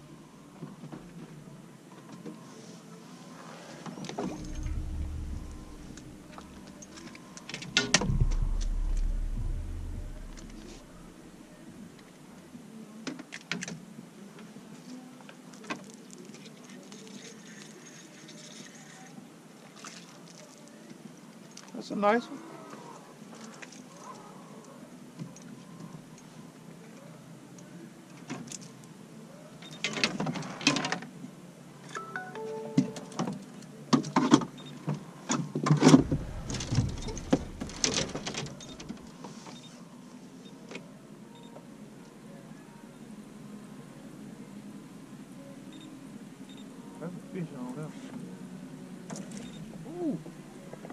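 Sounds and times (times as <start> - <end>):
faint low hum: 0.0 - 13.0, 35.8 - 50.9
low bump through boat hull: 4.3 - 7.0, 7.9 - 11.5, 36.0 - 39.0
gear knocking and rustling: 35.9 - 39.0.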